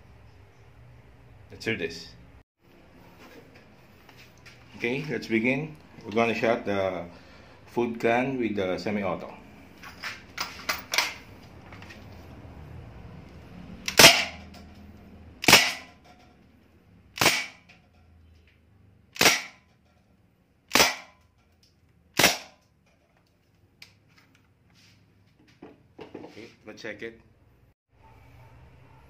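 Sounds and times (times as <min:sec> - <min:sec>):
bb rifle shots: 0:13.9 - 0:14.4, 0:15.4 - 0:15.9, 0:17.2 - 0:17.7, 0:19.2 - 0:19.6, 0:20.7 - 0:21.2, 0:22.2 - 0:22.6.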